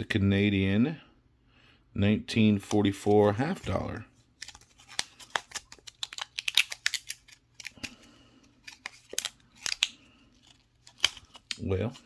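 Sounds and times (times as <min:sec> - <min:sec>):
plastic coin holder crinkling: 0:02.6 - 0:12.0.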